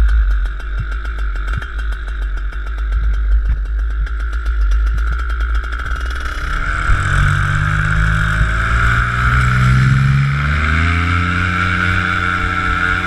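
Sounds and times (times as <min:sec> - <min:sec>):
paramotor engine revving up: 0:05.6 - 0:13.0.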